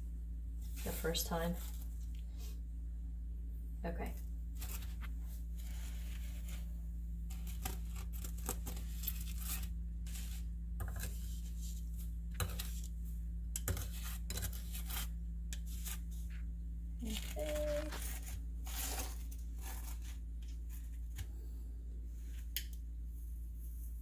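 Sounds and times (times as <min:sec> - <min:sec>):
steady low hum: 0:00.0 - 0:24.0
utensil scratching on plate and paper: 0:07.3 - 0:12.9, 0:13.6 - 0:16.3.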